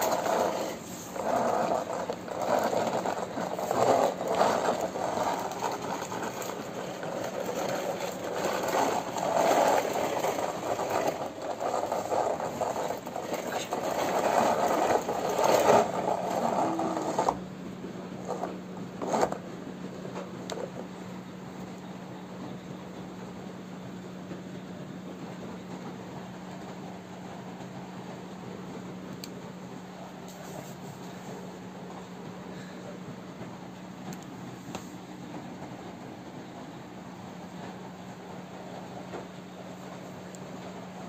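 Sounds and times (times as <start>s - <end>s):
toy gear mechanism whirring: 0.0s - 17.4s.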